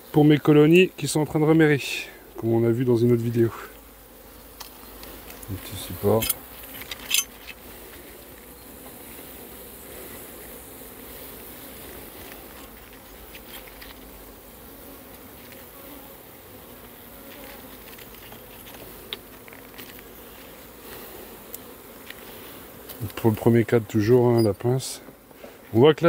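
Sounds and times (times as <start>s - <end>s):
honeybees buzzing: 0.0s - 26.0s
light clicks from hive handling: 4.6s - 9.0s, 12.1s - 14.2s, 16.8s - 23.4s.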